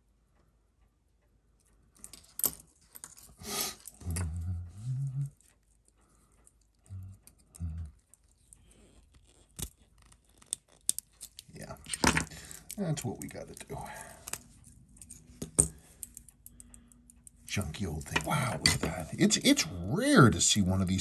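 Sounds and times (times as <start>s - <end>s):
person humming: 4.0s - 5.4s, 6.9s - 8.0s.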